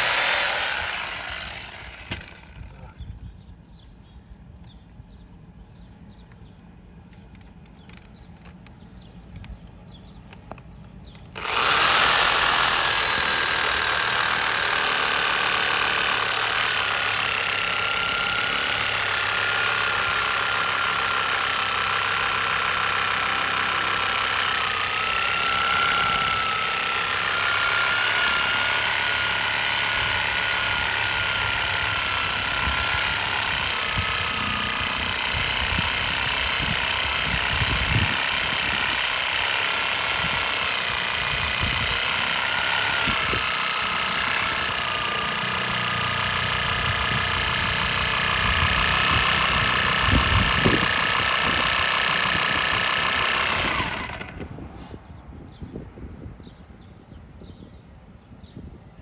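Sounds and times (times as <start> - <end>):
reciprocating saw cutting roots: 0.0 - 3.0, 10.1 - 55.0.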